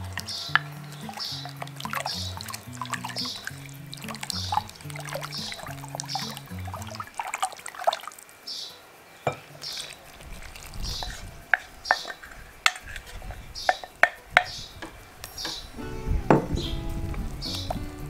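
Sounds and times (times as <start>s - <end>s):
spoon clinking on glass: 0.0s - 7.0s, 11.0s - 16.7s
liquid pouring into bowl: 0.0s - 8.2s, 9.3s - 13.8s
spoon stirring liquid in jug: 0.1s - 8.0s, 9.3s - 15.0s.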